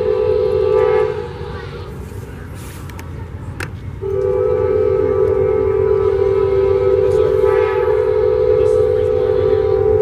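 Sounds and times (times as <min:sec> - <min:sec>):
train air horn blast: 0:00.0 - 0:01.4, 0:04.0 - 0:10.0.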